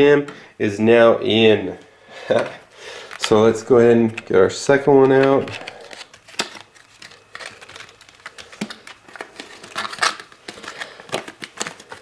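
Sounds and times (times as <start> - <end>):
plastic packaging crinkling and clicking: 3.0 - 12.0
plastic packaging snaps: 5.0 - 12.0.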